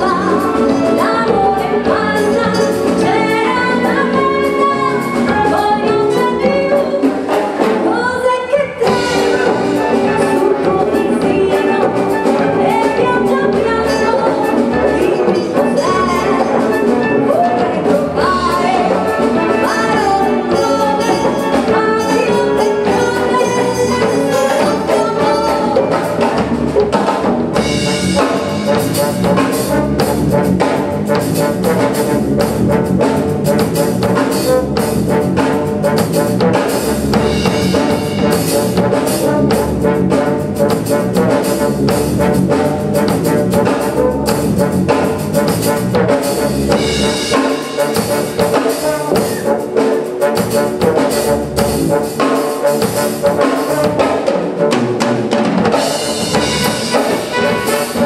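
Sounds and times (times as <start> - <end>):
steady drum beat: 0.0 - 8.2, 8.8 - 58.0
woman singing: 0.0 - 26.6
wind band playing: 0.0 - 58.0.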